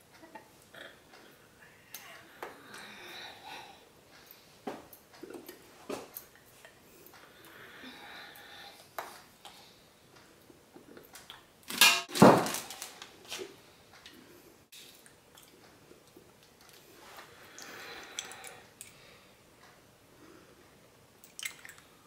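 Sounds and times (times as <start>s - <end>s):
handling and rustling: 11.7s - 13.6s.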